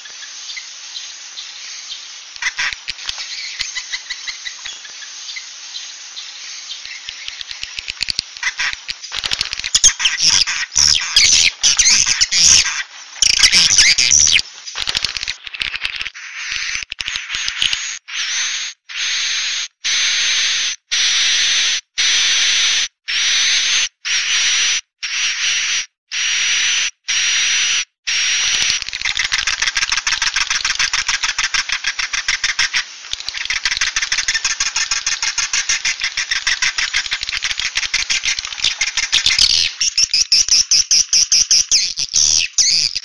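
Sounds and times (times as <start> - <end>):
harsh rasping bird calls: 0.0 - 14.4, 15.1 - 43.0.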